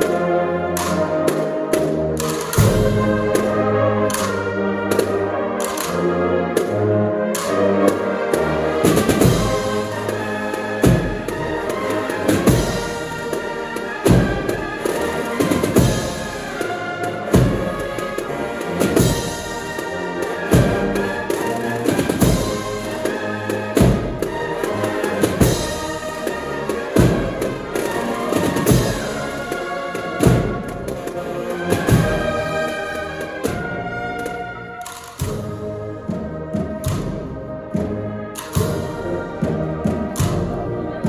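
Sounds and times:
brass melody: 0:00.0 - 0:41.0
rattling snare drums: 0:00.0 - 0:41.0
heavy bass drum strokes: 0:22.0 - 0:22.9.

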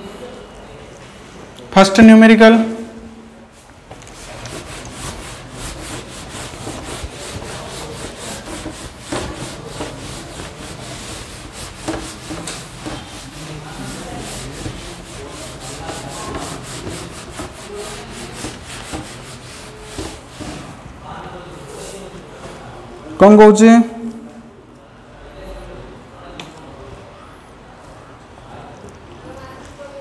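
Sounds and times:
duster rubbing on whiteboard: 0:03.5 - 0:20.8.

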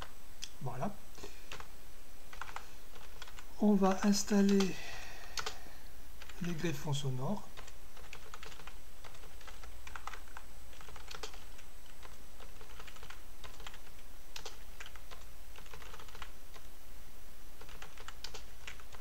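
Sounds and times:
steady low hum: 0:00.0 - 0:19.0
typing on computer keyboard: 0:01.5 - 0:01.7, 0:02.3 - 0:03.4, 0:05.4 - 0:05.6, 0:07.6 - 0:16.7, 0:17.6 - 0:19.0.

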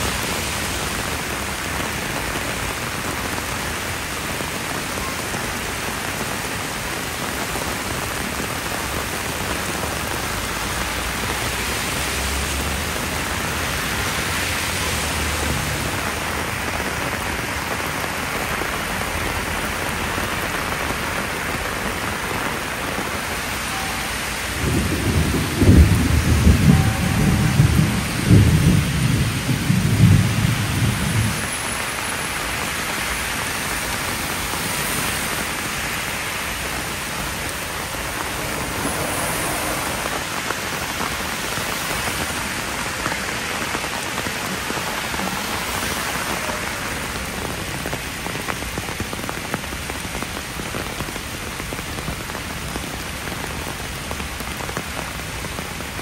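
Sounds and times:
heavy rain pouring: 0:00.0 - 0:56.0
thunder rumbling: 0:22.8 - 0:31.8, 0:36.7 - 0:41.4.

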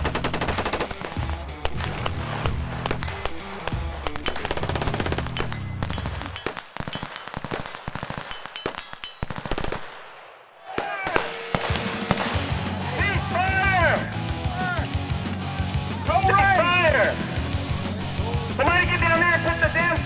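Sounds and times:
music with heavy low beat: 0:00.0 - 0:06.3, 0:12.0 - 0:20.0
automatic gunfire: 0:00.0 - 0:12.5.

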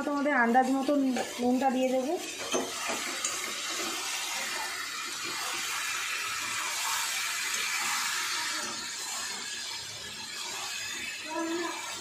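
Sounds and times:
chicken and onions sizzling in oil: 0:00.0 - 0:12.0.

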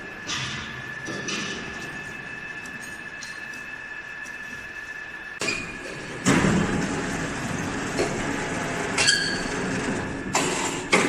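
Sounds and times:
faint steady whine: 0:00.0 - 0:08.6
machinery rumble: 0:00.0 - 0:11.0.

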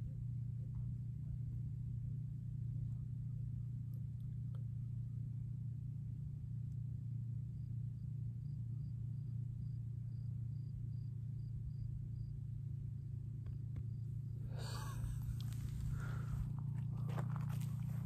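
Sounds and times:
steady low hum: 0:00.0 - 0:18.0
faint insect chirps: 0:07.4 - 0:16.3.

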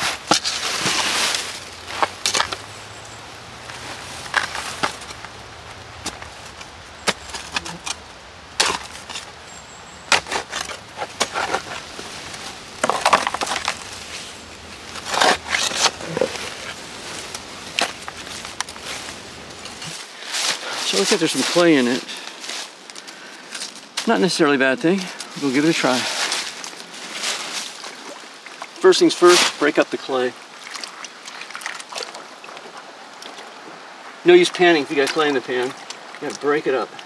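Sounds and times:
hand tool scraping gravel: 0:00.0 - 0:02.7, 0:03.8 - 0:05.3, 0:08.6 - 0:09.4, 0:10.0 - 0:22.8, 0:23.5 - 0:27.7.

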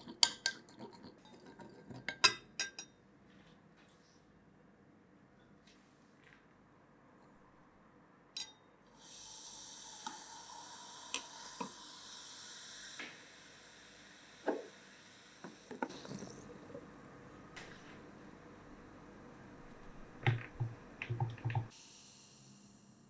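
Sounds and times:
baking soda fizzing: 0:09.0 - 0:16.8.

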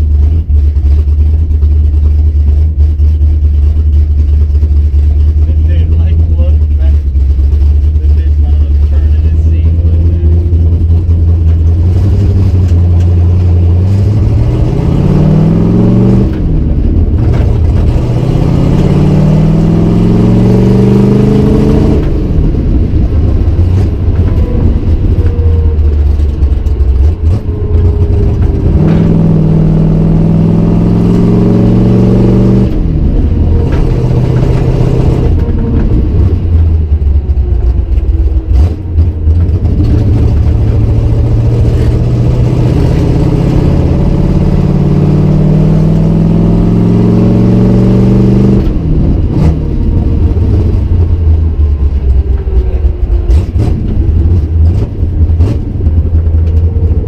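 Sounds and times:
car engine accelerating through gears: 0:00.0 - 0:57.0.

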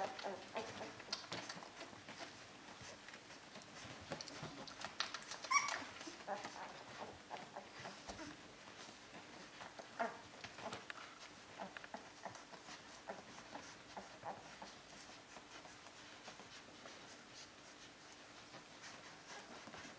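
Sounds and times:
puppies suckling: 0:00.0 - 0:19.9
puppy squeaks: 0:05.2 - 0:06.6.

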